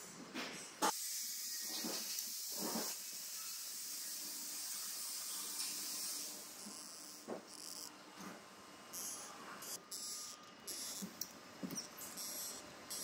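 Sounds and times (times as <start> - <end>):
compressed air hissing: 0.9 - 6.7.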